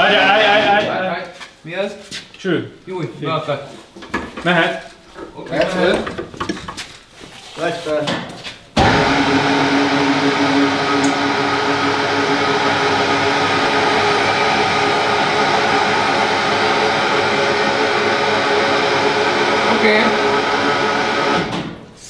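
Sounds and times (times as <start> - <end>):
hydraulic pump motor whine: 8.8 - 21.7.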